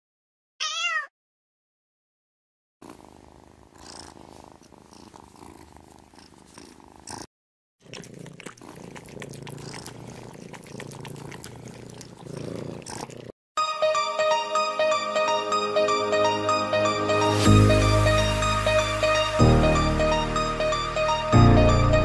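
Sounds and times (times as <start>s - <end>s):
cat purring: 2.8s - 13.3s.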